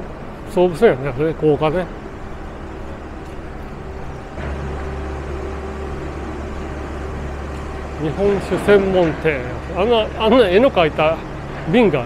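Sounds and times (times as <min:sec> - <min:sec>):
motor vehicle rumble: 0:00.0 - 0:12.0.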